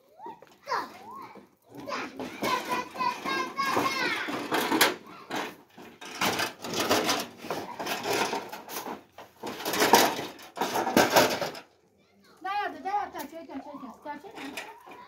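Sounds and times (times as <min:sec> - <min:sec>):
scraping clatter in a metal trough: 0:01.8 - 0:11.7, 0:14.2 - 0:15.0.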